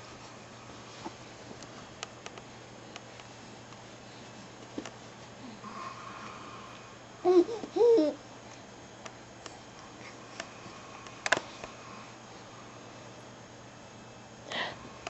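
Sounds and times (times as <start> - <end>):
infant cooing: 7.2 - 8.2.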